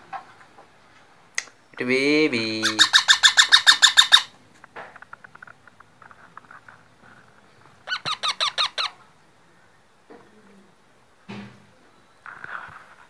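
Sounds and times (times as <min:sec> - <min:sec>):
parakeet chick squawking: 0:02.5 - 0:04.4, 0:07.8 - 0:09.0.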